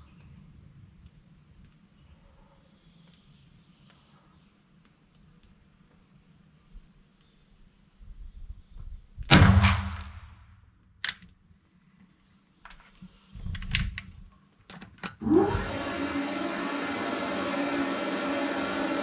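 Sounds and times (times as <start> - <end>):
rifle shot: 9.3 - 10.6.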